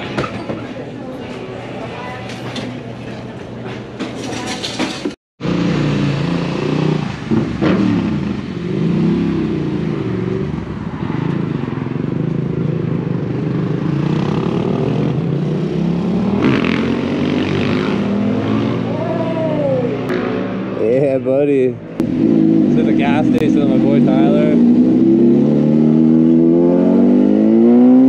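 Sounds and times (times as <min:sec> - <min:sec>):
motorcycle engine revving: 0:05.4 - 0:21.0, 0:22.0 - 0:28.0.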